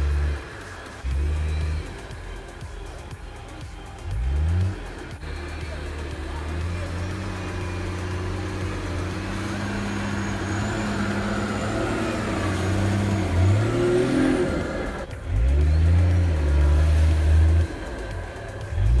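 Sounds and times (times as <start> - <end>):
car engine revving: 0.0 - 19.0.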